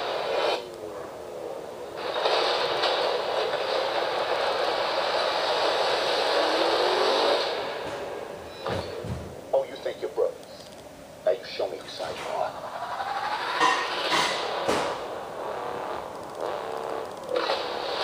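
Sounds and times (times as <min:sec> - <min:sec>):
movie trailer soundtrack from small speaker: 0:07.1 - 0:17.9.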